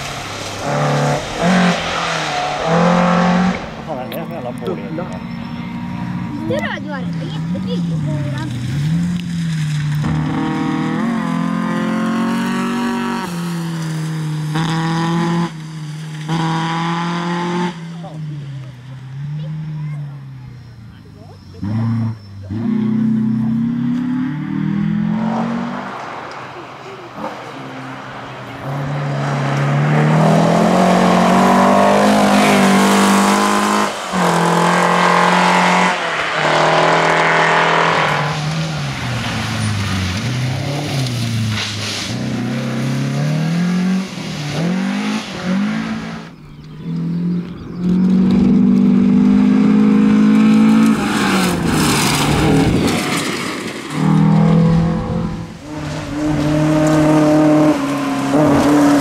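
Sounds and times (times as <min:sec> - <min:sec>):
rally car engines revving past: 0:00.0 - 0:59.0.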